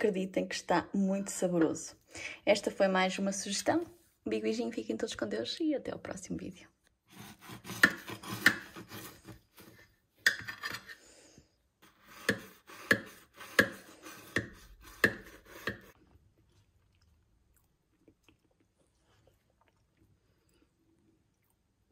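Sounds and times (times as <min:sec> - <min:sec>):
knife sawing through bread: 0:07.1 - 0:09.8, 0:11.8 - 0:16.0.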